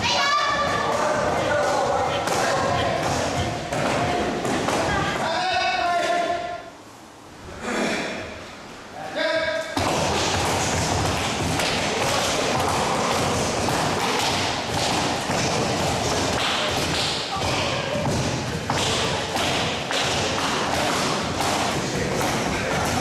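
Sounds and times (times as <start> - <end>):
thumps and thuds of striking: 9.8 - 23.0.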